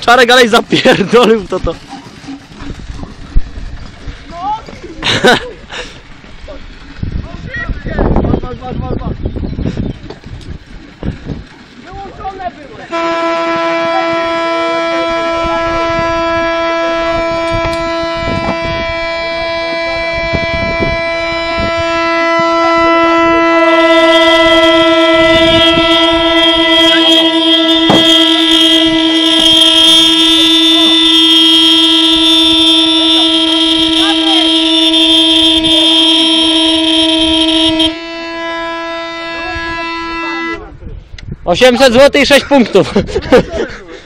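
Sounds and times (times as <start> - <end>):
steady horn-like tone: 12.9 - 40.8.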